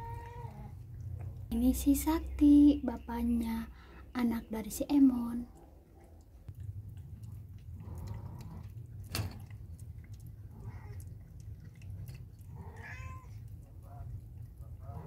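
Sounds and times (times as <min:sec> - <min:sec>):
cat licking and chewing: 0:05.4 - 0:15.0.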